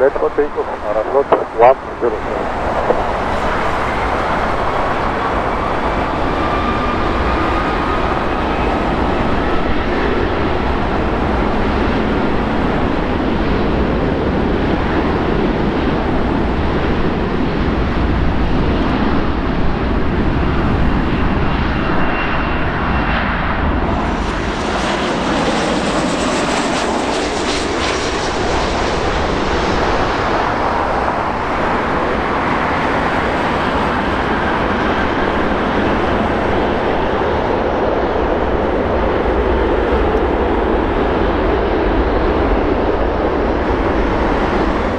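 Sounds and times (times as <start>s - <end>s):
jet engine roar: 0.0s - 44.9s.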